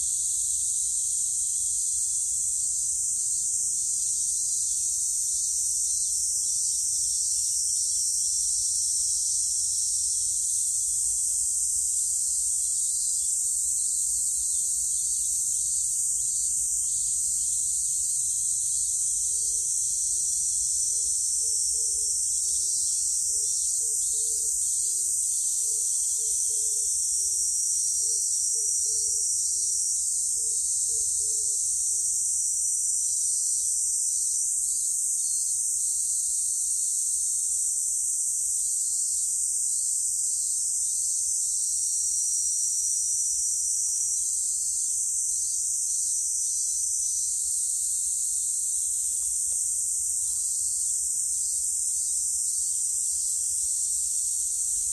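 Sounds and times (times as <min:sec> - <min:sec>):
cicadas droning: 0:00.0 - 0:54.9.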